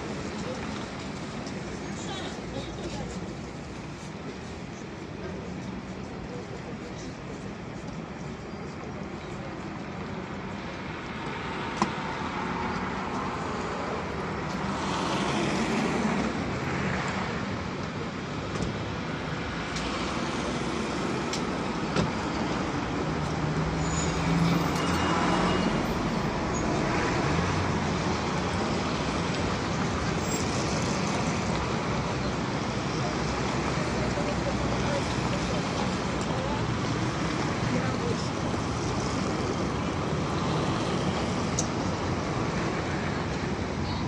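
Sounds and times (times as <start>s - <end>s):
tyres on road: 0.0s - 44.0s
cars passing: 10.5s - 44.0s.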